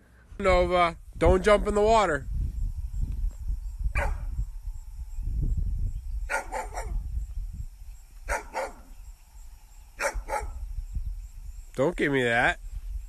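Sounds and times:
low rumble: 2.2 - 6.3
large dog barking: 4.0 - 4.3, 6.3 - 7.0, 8.3 - 8.9, 10.0 - 10.6.

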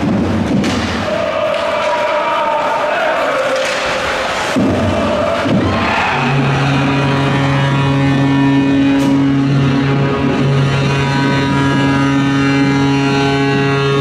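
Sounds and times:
goal horn blaring: 5.1 - 14.0.

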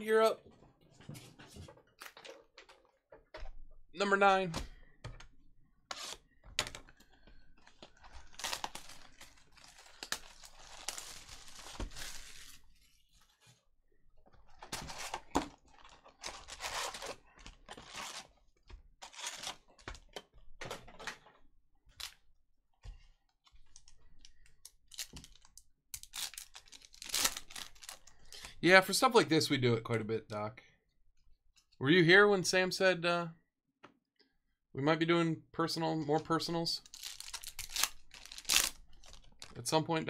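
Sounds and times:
wrapping tearing and crinkling: 7.7 - 13.0, 14.5 - 18.4, 19.0 - 19.8, 24.7 - 28.5, 36.9 - 39.6.

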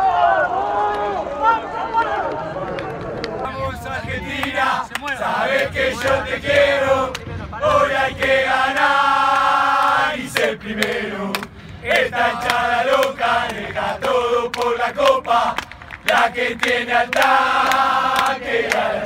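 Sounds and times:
men singing a chant: 3.8 - 19.0.

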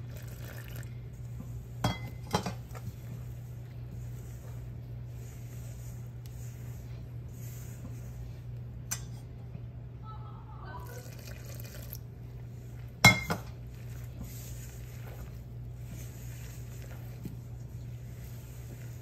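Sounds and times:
water pouring into a bowl: 0.0 - 1.0, 10.8 - 12.1
low steady hum: 0.0 - 19.0.

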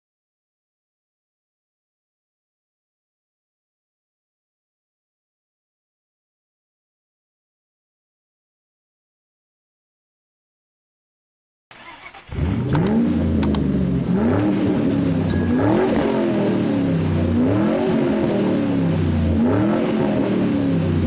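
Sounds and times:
car engine revving: 11.8 - 21.0
sharp clicks: 12.7 - 13.6, 14.3 - 14.5.

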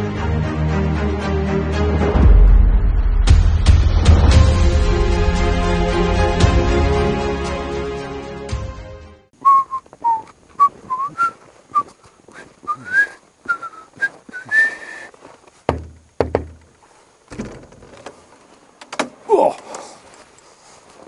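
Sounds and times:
person whistling a tune: 9.4 - 11.9, 12.7 - 15.1
footsteps in snow: 9.7 - 15.7, 19.8 - 21.0
heavy thumps: 15.6 - 18.2.

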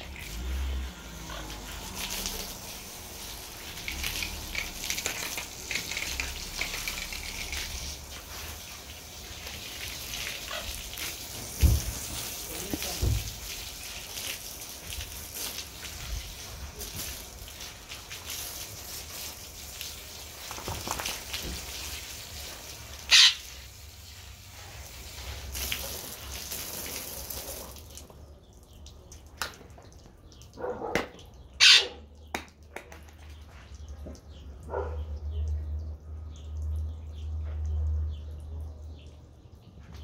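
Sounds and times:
steady water hiss: 0.0 - 28.5
water splashing and dripping: 0.0 - 40.0.

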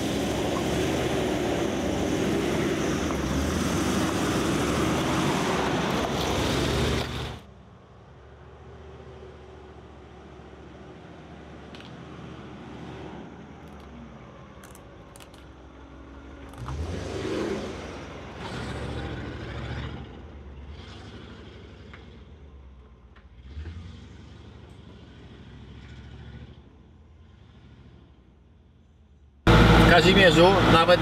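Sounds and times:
car engine revving while driving: 0.0 - 7.4, 16.4 - 22.5, 23.2 - 28.2.

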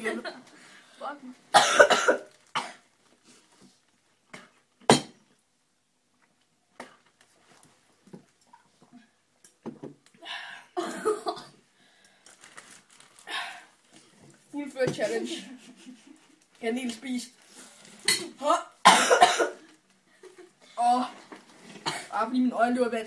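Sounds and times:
person coughing: 1.6 - 2.8, 18.1 - 19.6.

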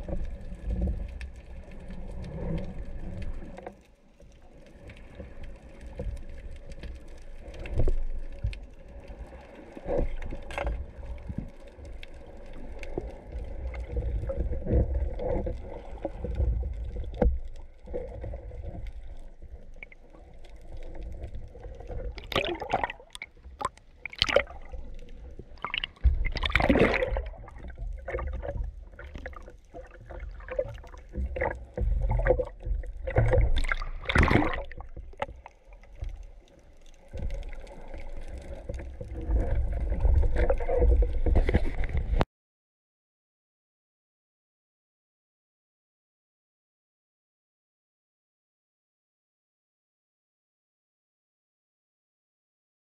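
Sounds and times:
gurgling rushes of water: 0.0 - 3.7, 4.4 - 42.2
underwater rumble: 0.0 - 42.2.

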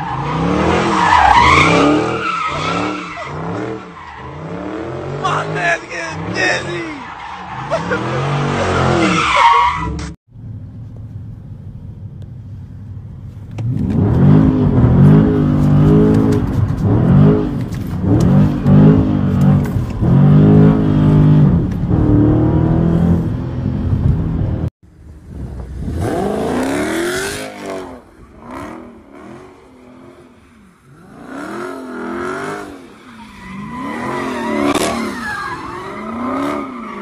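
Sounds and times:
car engine revving: 13.6 - 37.0
tyres squealing: 33.0 - 37.0.

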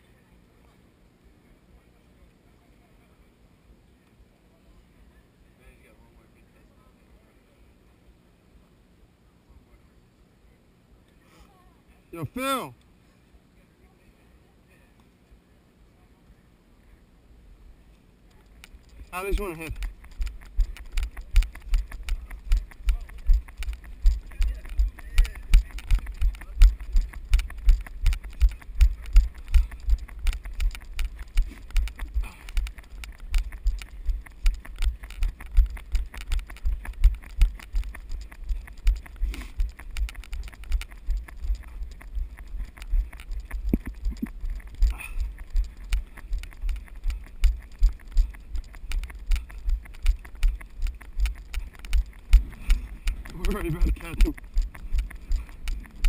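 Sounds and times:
running footsteps on dirt: 18.4 - 56.0.

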